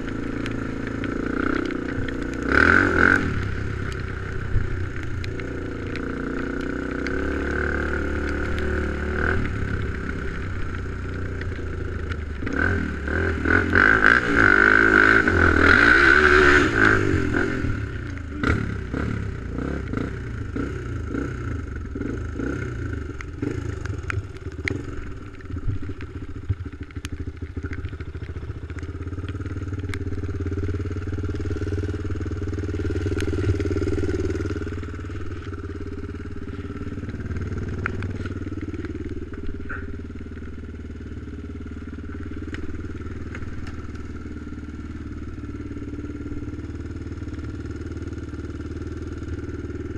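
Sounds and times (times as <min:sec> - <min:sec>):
atv engine revving: 0:00.0 - 0:49.9
clicks and clatter: 0:22.4 - 0:47.6.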